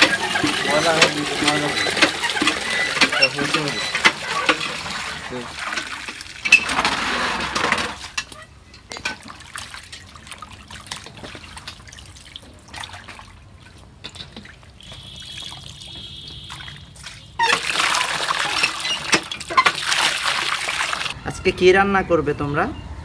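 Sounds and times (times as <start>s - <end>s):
meat washed by hand in water: 0.0s - 7.9s, 9.1s - 21.2s
water pouring into metal bowl: 0.0s - 8.2s, 17.4s - 21.2s.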